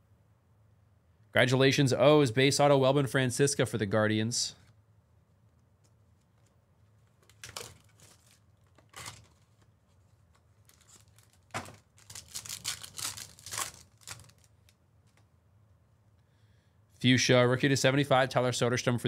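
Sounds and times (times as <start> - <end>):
card pack wrappers tearing: 7.2 - 9.6, 10.6 - 14.8.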